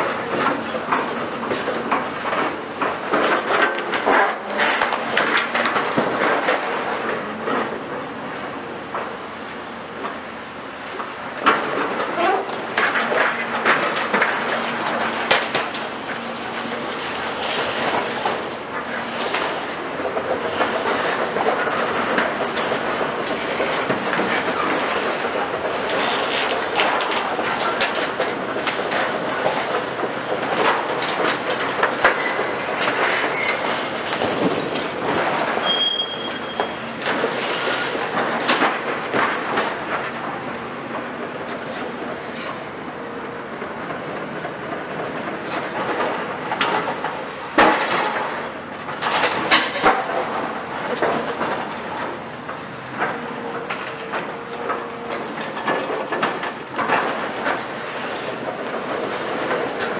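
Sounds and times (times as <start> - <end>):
excavator grinding and scraping metal: 0.0 - 8.6, 11.3 - 59.9
high metal squeals: 35.6 - 36.8.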